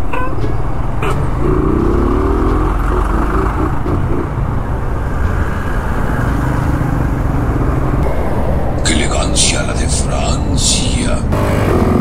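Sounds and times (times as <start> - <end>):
motorcycle engine and road noise: 0.0 - 8.9, 11.3 - 12.0.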